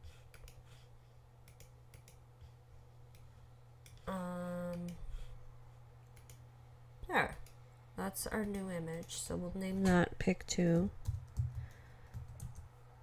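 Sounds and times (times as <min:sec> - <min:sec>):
steady low hum: 0:00.0 - 0:13.0
computer mouse clicking: 0:00.2 - 0:00.6, 0:01.4 - 0:02.2, 0:03.1 - 0:05.0, 0:06.0 - 0:06.4, 0:08.4 - 0:09.2.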